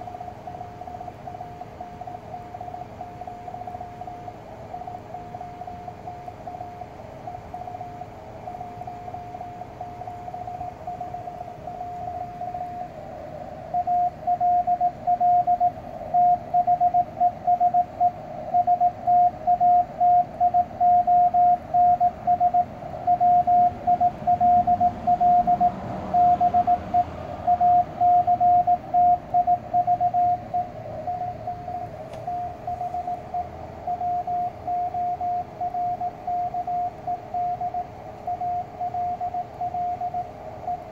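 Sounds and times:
morse code tone: 13.5 - 40.9.

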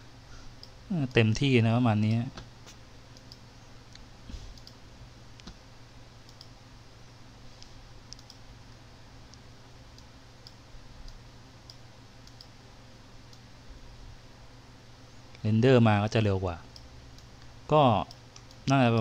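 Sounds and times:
low electrical hum: 0.0 - 19.0
computer mouse clicking: 3.1 - 4.8, 5.4 - 5.6, 6.3 - 6.6, 7.6 - 8.4, 10.0 - 12.5.

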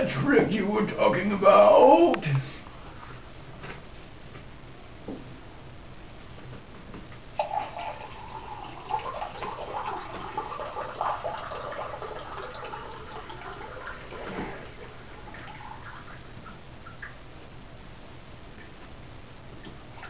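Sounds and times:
water trickling into glass: 7.4 - 14.3.

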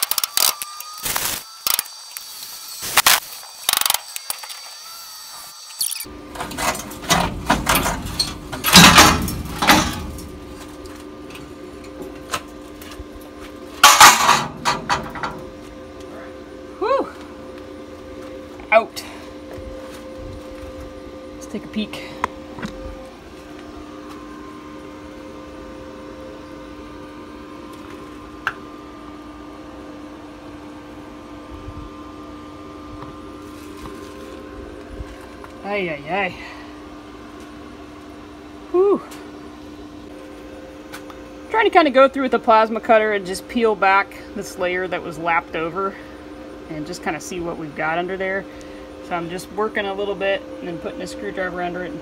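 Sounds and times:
faint steady hum: 0.6 - 52.0
metal clattering and scraping: 6.3 - 11.0, 13.8 - 15.5.

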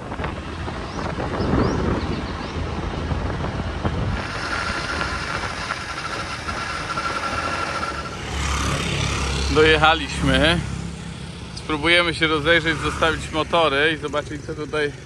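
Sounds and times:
wind on microphone: 0.0 - 9.5
motorbike engine and road noise: 0.0 - 15.0
high-pitched pulsing buzz: 4.0 - 9.7.

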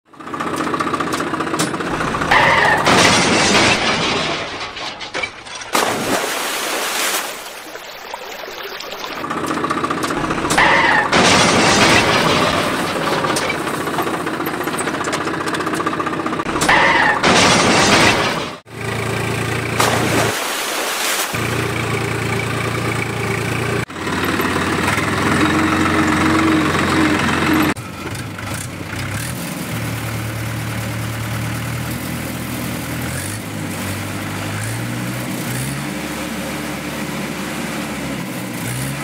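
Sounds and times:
engine sound effect: 0.1 - 4.9, 7.6 - 20.6.

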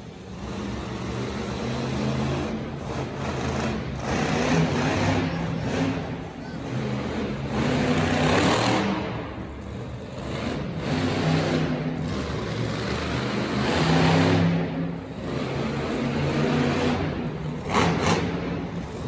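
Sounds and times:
monster truck engine revving: 0.0 - 19.0.

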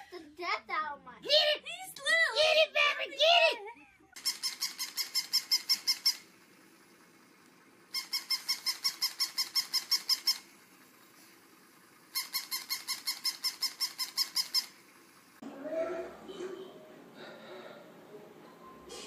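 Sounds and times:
plush toy squeaking: 4.1 - 6.3, 7.9 - 10.5, 12.1 - 14.8.

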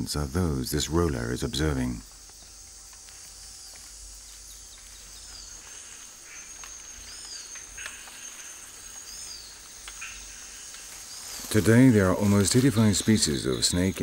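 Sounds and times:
high-pitched insect drone: 0.0 - 14.0
faint ticks: 2.0 - 11.4.

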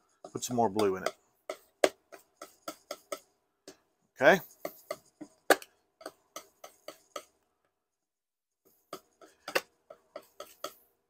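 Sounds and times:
palette knife tapping on palette: 0.3 - 3.8.

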